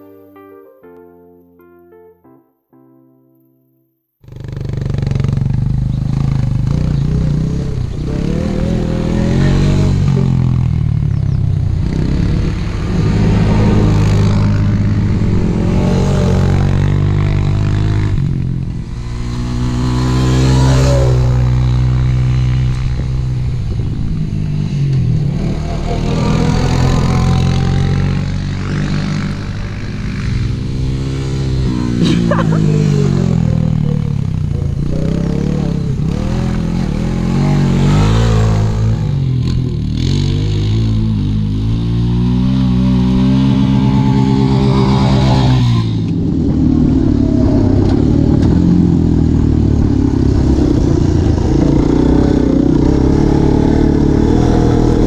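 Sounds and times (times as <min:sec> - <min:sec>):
atv engines revving: 0:04.2 - 0:55.0.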